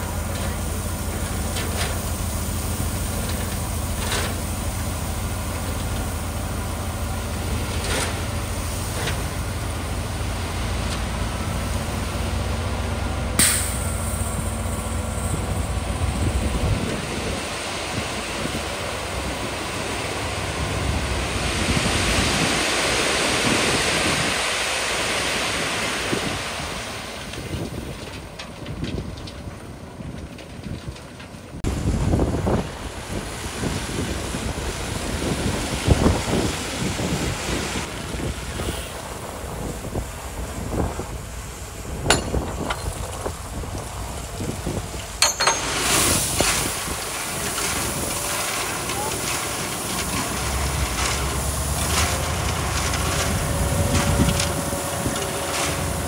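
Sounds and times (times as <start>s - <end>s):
heavy diesel engine rumble: 0.0s - 56.0s
broad rushing noise: 31.6s - 56.0s
sharp metallic clanks: 42.1s - 43.1s, 45.2s - 46.1s.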